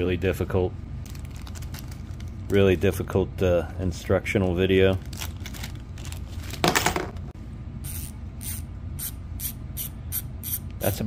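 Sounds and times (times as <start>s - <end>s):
plastic bag rustling: 1.0s - 2.8s, 4.7s - 6.7s
bicycle freehub clicking: 7.8s - 10.6s.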